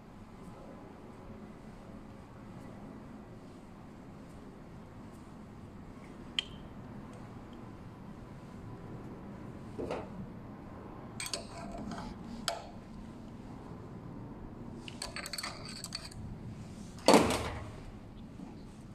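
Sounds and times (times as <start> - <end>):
metal tools clinking and tapping: 11.2 - 12.6, 14.9 - 16.2.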